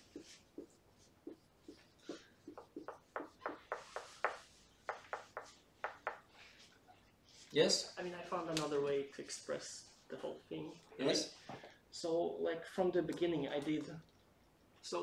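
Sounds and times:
marker squeaking on whiteboard: 0.0 - 7.5.

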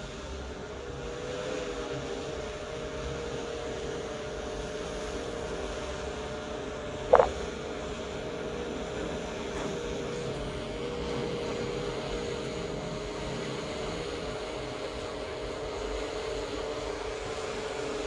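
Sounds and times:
brief sharp sound: 7.1 - 7.4
drone propellers humming: 7.1 - 7.5.

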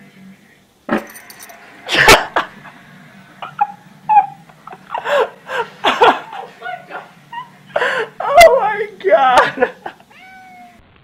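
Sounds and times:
cat mewing: 10.0 - 10.9.

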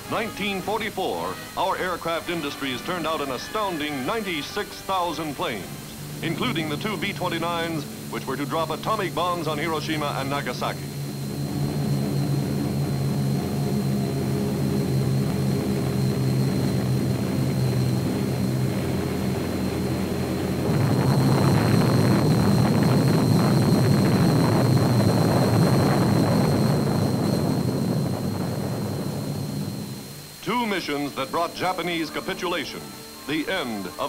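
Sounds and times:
propeller aircraft engines droning: 0.0 - 34.0
deep explosion rumble: 5.6 - 30.2.

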